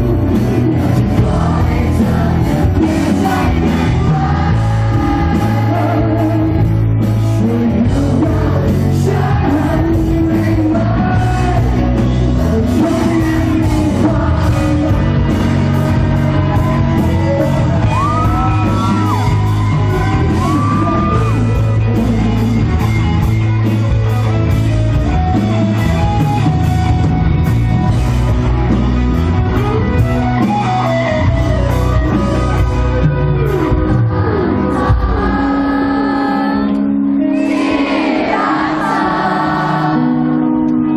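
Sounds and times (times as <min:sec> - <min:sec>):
person singing: 0:00.0 - 0:23.1
drums keeping a steady beat: 0:00.0 - 0:34.0
electric guitar: 0:00.0 - 0:40.9.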